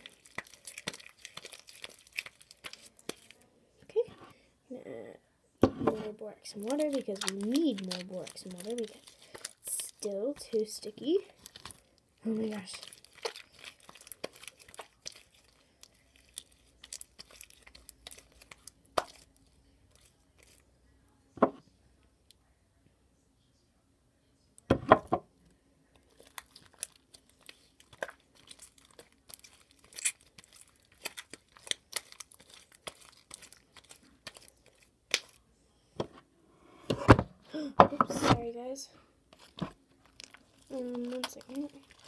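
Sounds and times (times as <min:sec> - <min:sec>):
slime wet clicks and crackles: 0:00.0 - 0:03.4, 0:06.6 - 0:10.2, 0:11.4 - 0:20.6, 0:26.0 - 0:35.4, 0:39.4 - 0:42.0.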